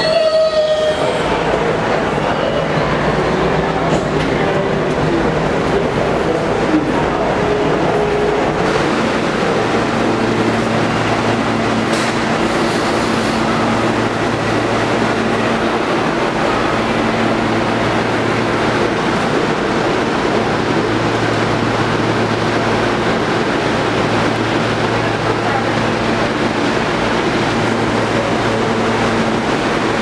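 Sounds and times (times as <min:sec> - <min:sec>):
station din: 0:00.0 - 0:23.3
idling train hum: 0:00.0 - 0:30.0.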